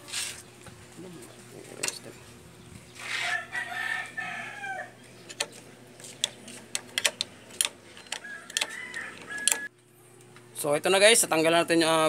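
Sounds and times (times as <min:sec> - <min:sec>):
rooster crowing: 0:03.0 - 0:05.0, 0:08.2 - 0:09.7
hex key clicking on bolt: 0:06.2 - 0:09.6.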